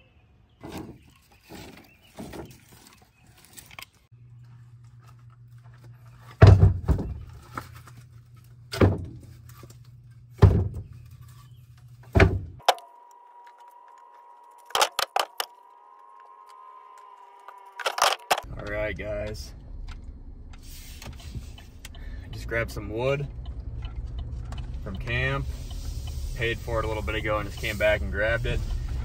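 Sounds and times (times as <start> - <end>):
low steady hum: 4.1 - 29.0
logs thunking onto truck bed: 6.3 - 7.3, 8.7 - 9.2, 10.4 - 10.9, 12.1 - 12.6.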